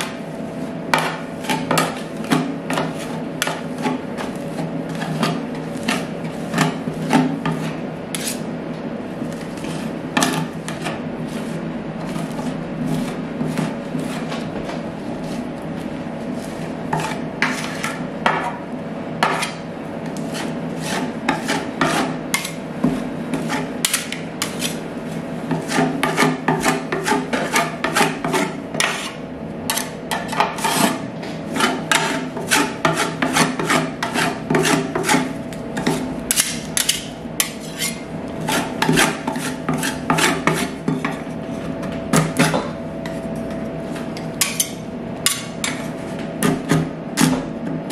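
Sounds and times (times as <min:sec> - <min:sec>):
metal spatulas scraping metal plate: 0:00.9 - 0:08.4, 0:16.4 - 0:18.0, 0:20.2 - 0:22.6, 0:23.3 - 0:24.8, 0:25.5 - 0:41.3.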